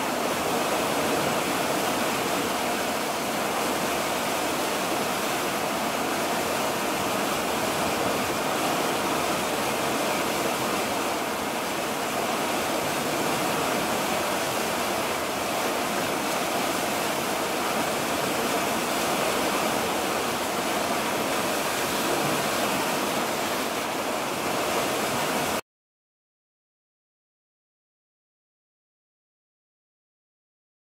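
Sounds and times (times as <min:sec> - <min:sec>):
water rushing along ship hull: 0:00.0 - 0:25.6.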